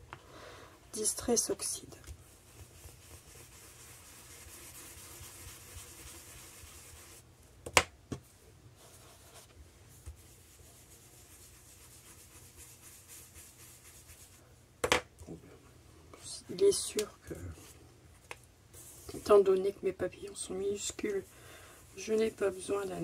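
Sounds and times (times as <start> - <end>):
brush swishing on paper: 1.0 - 7.2, 8.8 - 14.5, 18.7 - 23.0.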